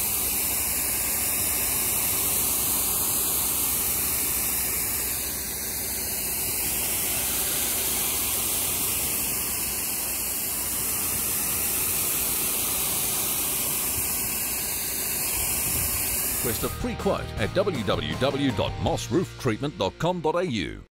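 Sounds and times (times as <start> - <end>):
spray gun hissing: 0.0 - 16.8.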